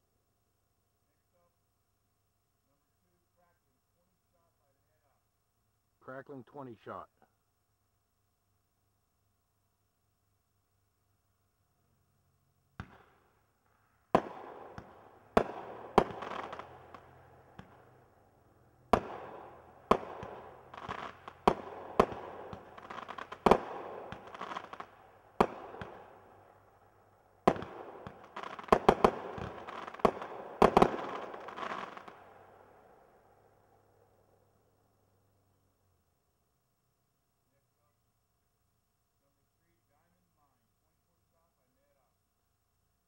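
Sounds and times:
firework crackle: 0:12.8 - 0:18.0, 0:18.9 - 0:26.3, 0:27.4 - 0:32.3
firework bangs: 0:14.1 - 0:18.0, 0:18.9 - 0:26.2, 0:27.4 - 0:32.2.

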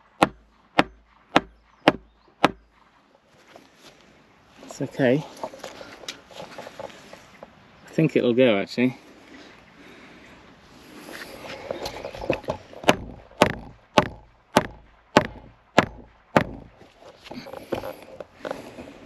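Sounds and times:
hammer striking wooden rail: 0:00.0 - 0:02.6, 0:12.2 - 0:16.9.

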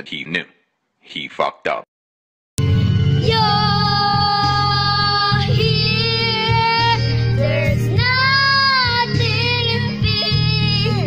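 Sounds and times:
karaoke backing track: 0:02.6 - 0:11.0
girl singing into a microphone: 0:03.2 - 0:11.0.

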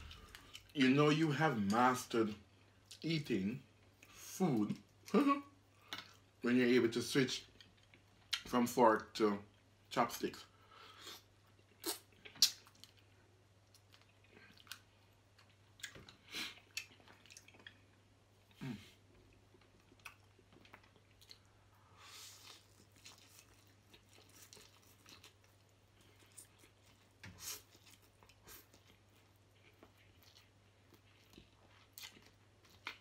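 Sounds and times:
person chewing food: 0:00.0 - 0:00.8, 0:04.8 - 0:06.4, 0:07.4 - 0:08.5, 0:10.9 - 0:33.0
faint low hum: 0:00.0 - 0:33.0
mouth clicks and smacks: 0:11.8 - 0:12.8.

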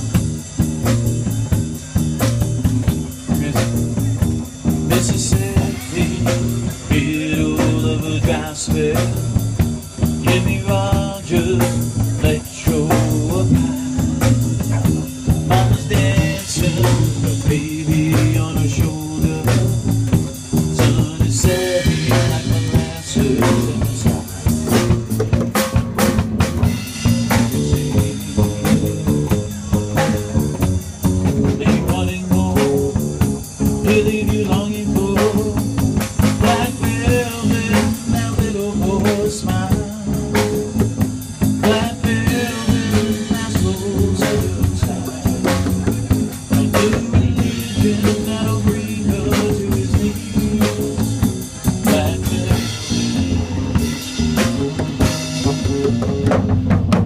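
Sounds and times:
man singing: 0:00.0 - 0:25.2, 0:26.6 - 0:54.1
acoustic bass guitar: 0:00.0 - 0:57.0
drum kit beat: 0:00.0 - 0:57.0.

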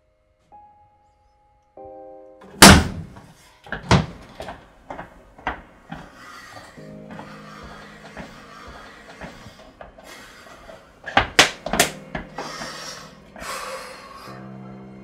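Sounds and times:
soft score music: 0:00.0 - 0:15.0
loud slam: 0:02.6 - 0:03.2.

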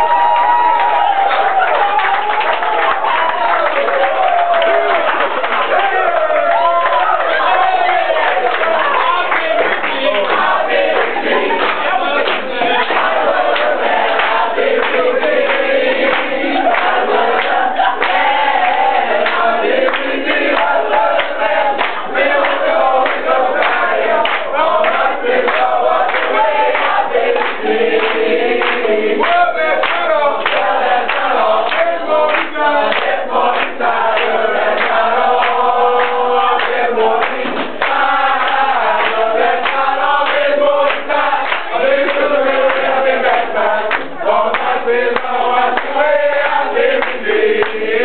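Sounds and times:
group of people singing: 0:00.0 - 0:48.0.

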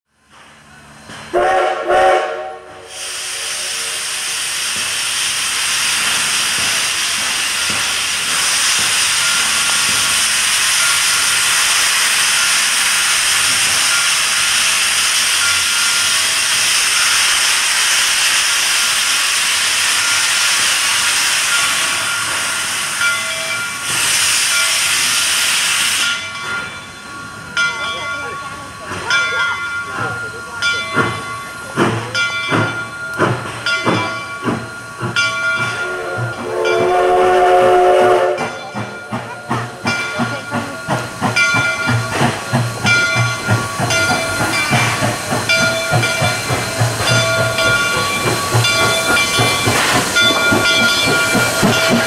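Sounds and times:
hiss of escaping steam: 0:00.4 - 0:27.6, 0:29.9 - 0:52.0
steam whistle blasts: 0:01.3 - 0:04.4, 0:35.8 - 0:38.6.

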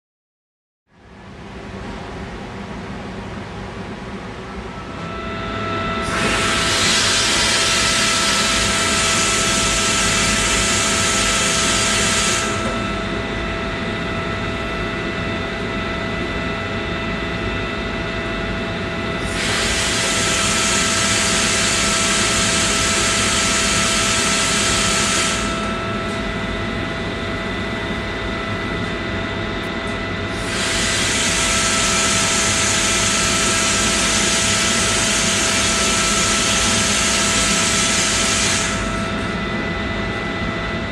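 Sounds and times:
machine hum: 0:01.2 - 0:40.9
compressed air hissing: 0:06.0 - 0:12.6, 0:19.3 - 0:25.5, 0:30.3 - 0:38.8.

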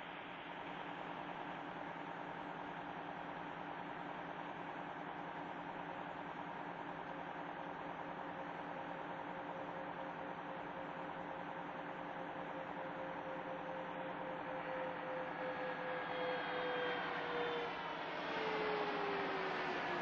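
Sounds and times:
mechanical hum and whine: 0:00.0 - 0:20.0.

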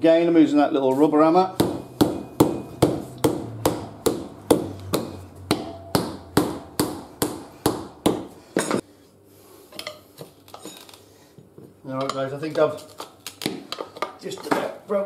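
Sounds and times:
rubber hammer knocking tyre: 0:01.5 - 0:08.4.

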